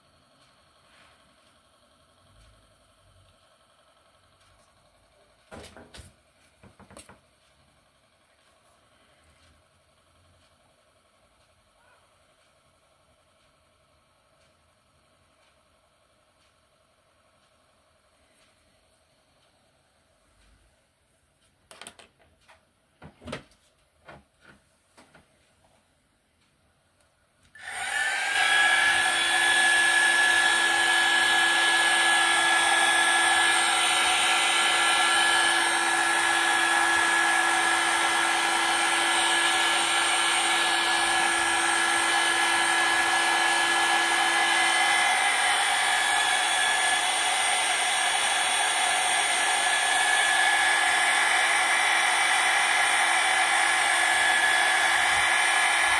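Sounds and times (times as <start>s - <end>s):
small clicks and knocks: 21.4s - 25.3s
pottery wheel motor whine: 27.4s - 55.9s.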